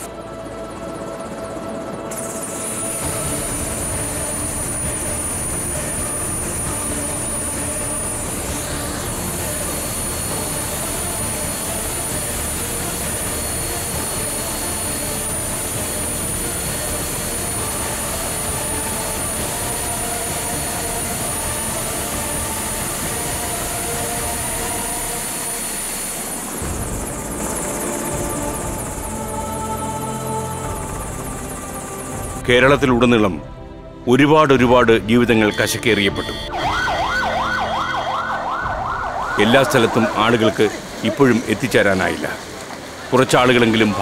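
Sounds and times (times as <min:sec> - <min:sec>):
helicopter engine and rotor: 0:00.0 - 0:34.0.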